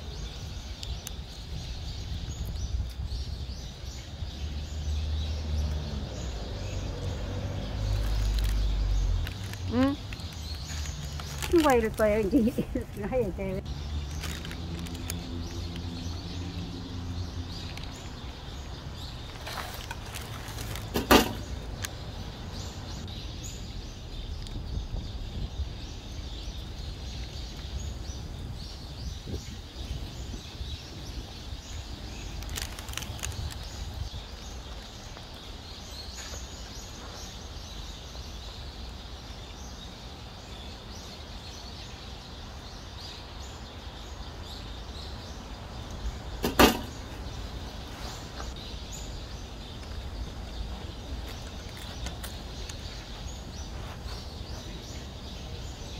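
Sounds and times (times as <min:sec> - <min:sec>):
sharp knock: 0:46.4 - 0:47.0.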